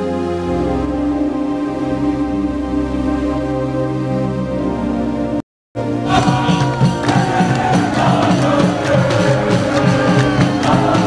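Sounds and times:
slow ambient music: 0.0s - 11.0s.

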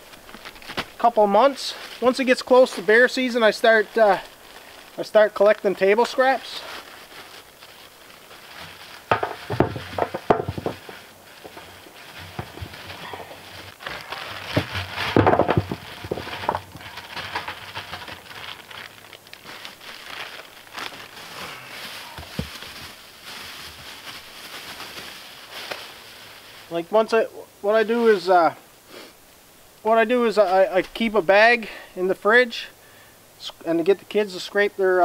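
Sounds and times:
plastic bag crinkling: 0.0s - 26.9s
knocks against plastic barrel: 9.1s - 10.8s, 14.6s - 16.6s.

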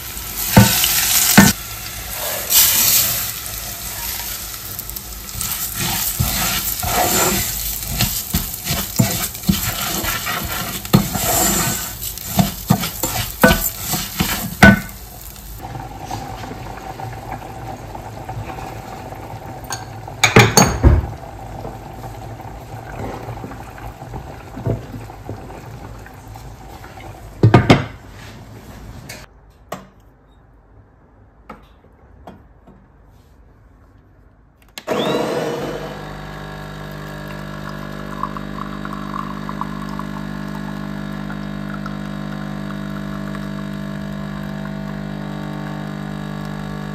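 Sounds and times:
food sizzling in a pan: 0.0s - 17.1s
pots or dishes clattering: 19.7s - 21.1s.

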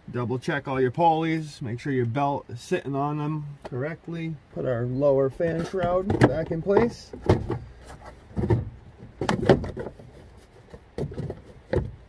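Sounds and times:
plastic knocks and clatters: 5.6s - 12.0s.

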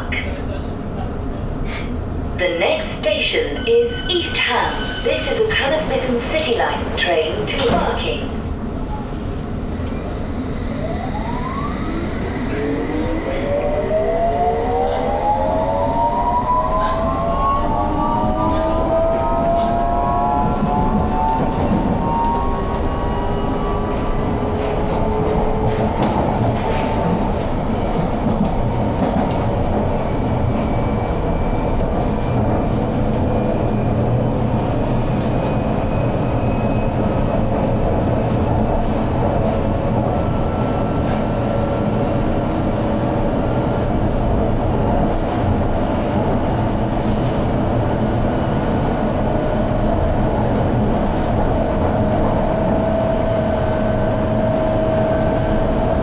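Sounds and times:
train whine rising in pitch: 10.0s - 25.6s
train wheels rumbling on rail: 14.8s - 56.0s.

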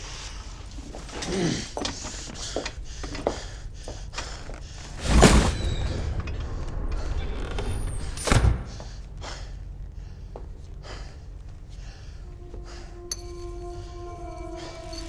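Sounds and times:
low hum: 5.5s - 15.0s.

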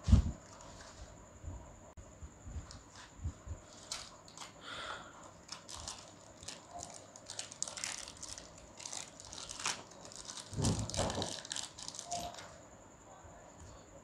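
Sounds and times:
plastic packet crinkling and tearing: 5.3s - 12.4s.

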